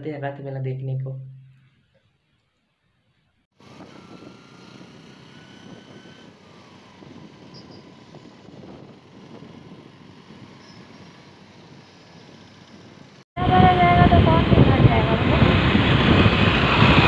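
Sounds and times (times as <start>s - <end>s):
road and wind noise: 3.5s - 17.0s.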